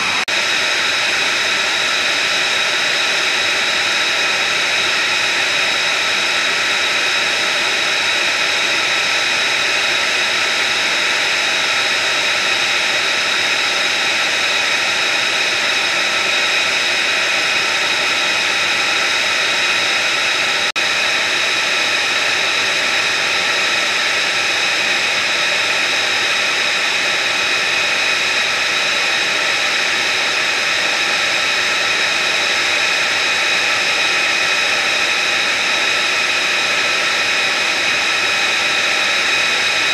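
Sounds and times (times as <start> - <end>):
high-pitched whining tones: 0.0 - 0.6
jet engine running: 0.0 - 39.9.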